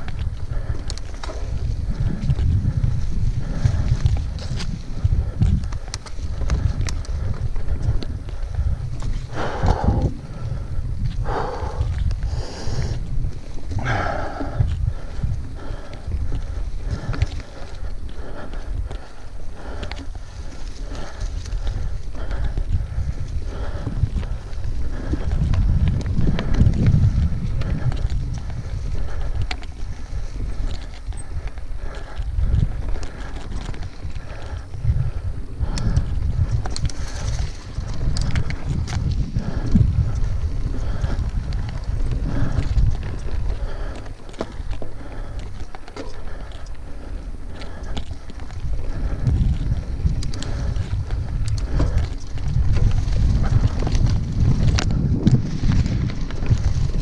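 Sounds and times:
bike clicks and rattles: 0.0s - 57.0s
mountain bike rolling on dirt trail: 0.0s - 57.0s
wind buffeting microphone: 0.0s - 57.0s
tyres rolling over dirt and leaves: 36.2s - 57.0s.

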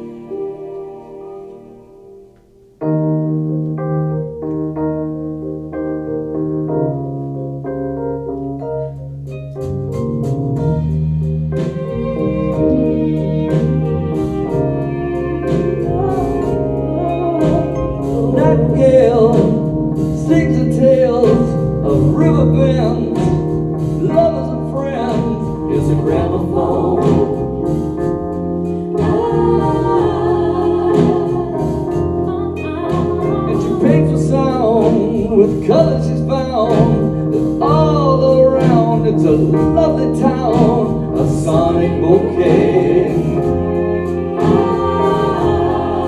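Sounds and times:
organ-like keyboard chords: 0.0s - 46.0s
bowed violin line: 11.3s - 19.7s, 42.0s - 46.0s.

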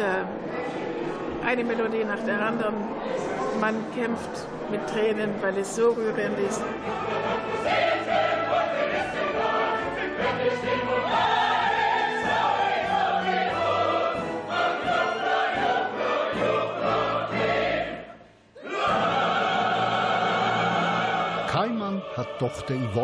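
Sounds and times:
chorus singing: 3.1s - 23.0s.

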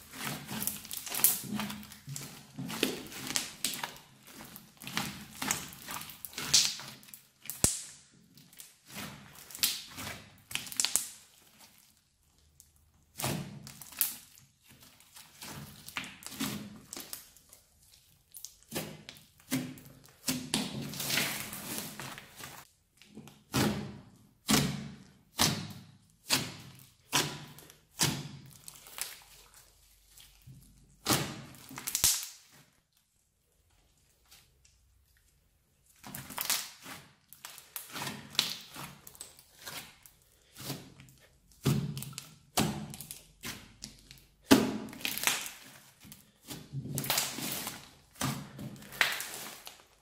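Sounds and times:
hands squishing slime: 0.0s - 50.0s.

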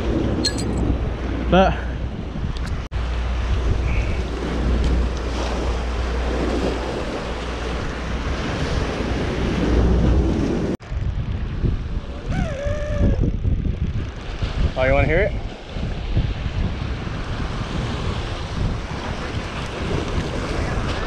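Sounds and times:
wind rumbling on microphone: 0.0s - 21.0s
surf washing against rocks: 4.2s - 10.8s, 14.1s - 21.0s.

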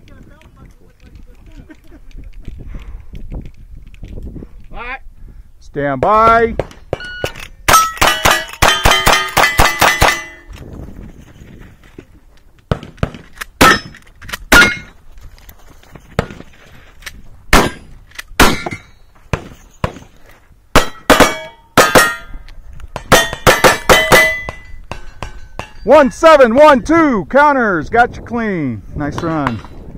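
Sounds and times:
steel plates ringing: 7.0s - 10.5s, 13.6s - 14.9s, 20.8s - 22.4s, 23.1s - 26.0s
rifle gunshots: 17.5s - 18.8s.

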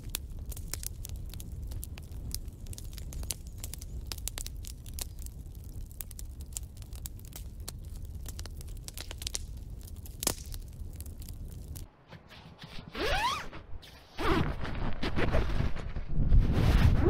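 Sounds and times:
campfire crackling and popping: 0.0s - 11.9s.

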